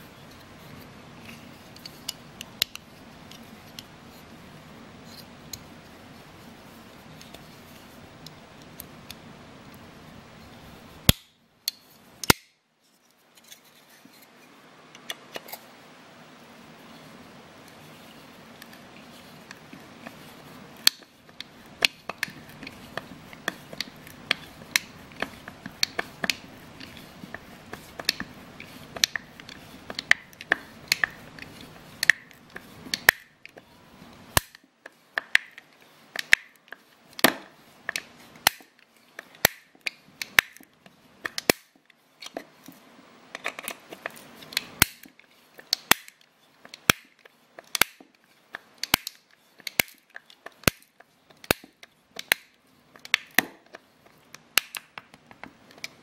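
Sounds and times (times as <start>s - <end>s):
multi-tool clicks and snaps: 11.1s - 12.6s, 20.8s - 33.6s, 34.4s - 34.6s, 35.2s - 42.4s, 43.4s - 53.8s, 54.4s - 56.0s.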